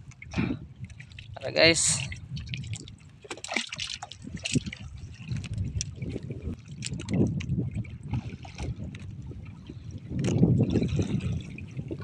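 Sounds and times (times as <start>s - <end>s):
steady low rumble: 0.0s - 3.3s
small splashes and trickles: 0.0s - 12.0s
water lapping against boat hull: 0.0s - 12.0s.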